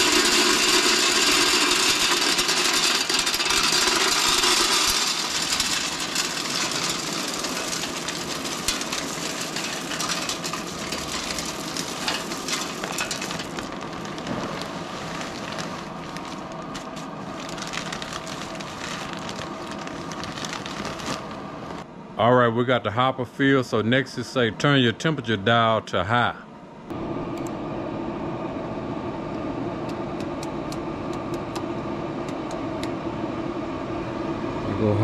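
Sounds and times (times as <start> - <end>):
wood pellets pouring into hopper: 0.0 - 21.3.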